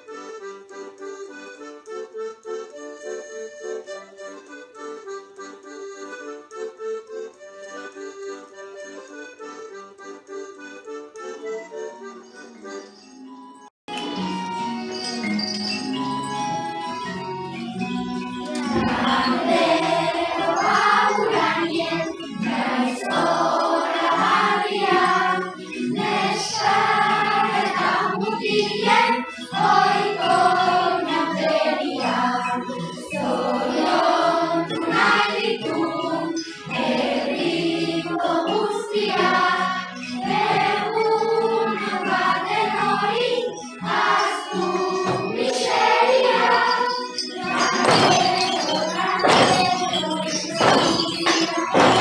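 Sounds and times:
instrumental music: 0:00.0 - 0:52.0
choir singing: 0:17.4 - 0:52.0.

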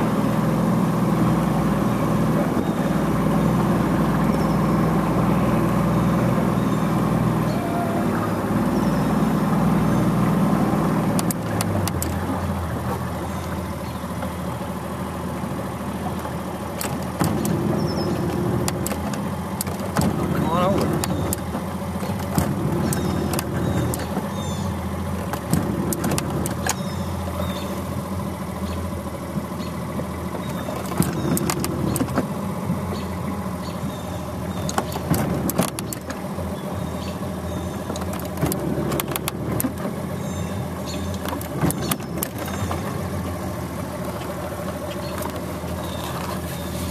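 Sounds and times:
small boat motor humming: 0:00.0 - 0:46.9
sharp clicks or knocks: 0:34.7 - 0:36.2.

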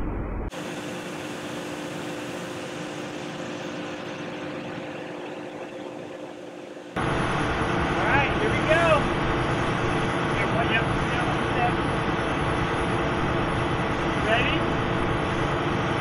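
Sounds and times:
machine hum with hiss: 0:00.5 - 0:16.0
deep engine rumble: 0:03.7 - 0:16.0.

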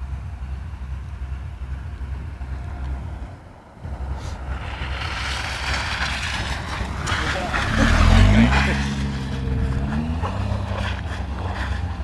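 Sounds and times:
car engine running: 0:00.0 - 0:12.0
low rumble: 0:00.0 - 0:12.0
tyres hissing through wet snow: 0:04.1 - 0:12.0.

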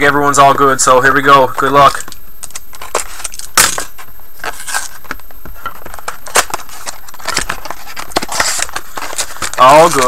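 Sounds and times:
plastic wrapper crinkling and tearing: 0:02.0 - 0:10.0.

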